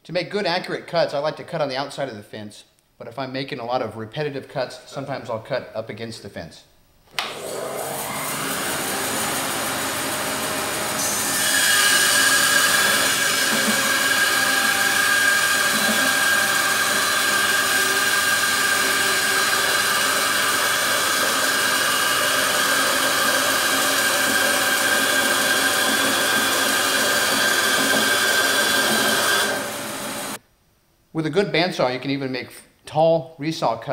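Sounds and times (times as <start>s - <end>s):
bandsaw cutting wood: 7.2s - 30.4s.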